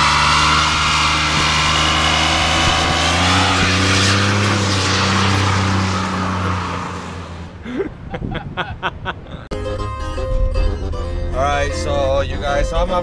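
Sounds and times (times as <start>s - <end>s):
engine revving high: 0.0s - 7.4s.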